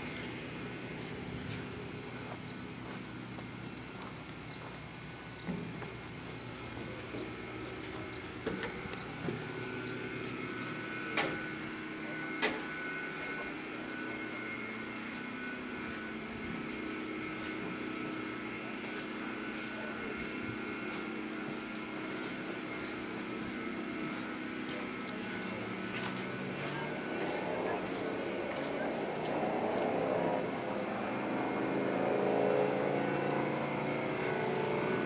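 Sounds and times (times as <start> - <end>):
background hum: 0.0 - 12.2
footsteps on steel floor: 17.3 - 29.9.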